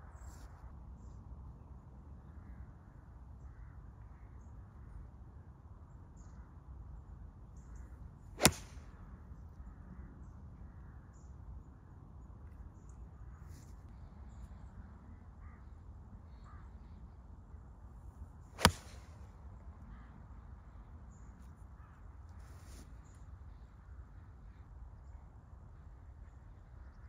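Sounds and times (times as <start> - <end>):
golf club striking ball: 8.4 - 8.8, 18.6 - 19.1.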